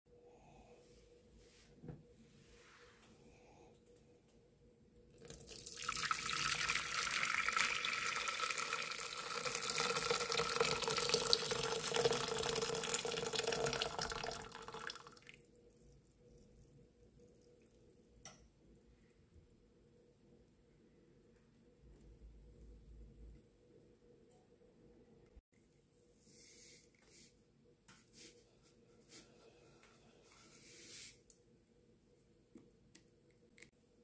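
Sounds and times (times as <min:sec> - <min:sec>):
water pouring into pot: 0:05.2 - 0:15.4.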